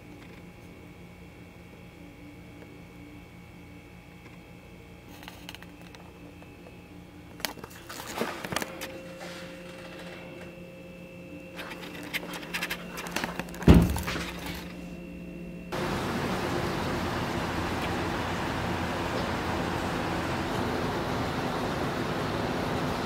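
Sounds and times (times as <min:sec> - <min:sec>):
room hum: 0:00.0 - 0:23.0
loud thump: 0:13.7 - 0:14.4.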